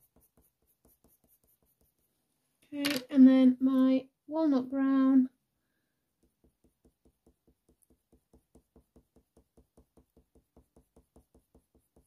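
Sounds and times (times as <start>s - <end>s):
pencil scratching on paper: 0.0s - 2.3s, 6.2s - 12.0s.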